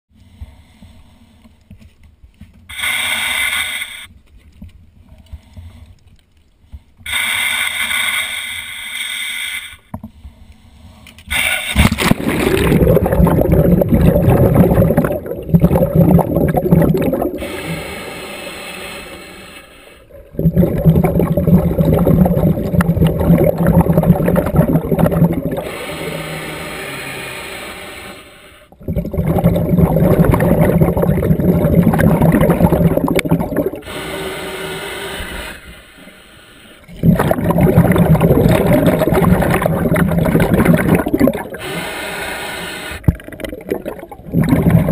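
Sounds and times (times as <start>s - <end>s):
hissing regulator inhalations: 2.7s - 4.1s, 7.0s - 15.8s, 16.9s - 44.9s
bubbling underwater exhalations: 11.7s - 17.8s, 20.1s - 25.8s, 28.7s - 33.9s, 36.9s - 41.8s, 43.0s - 44.9s.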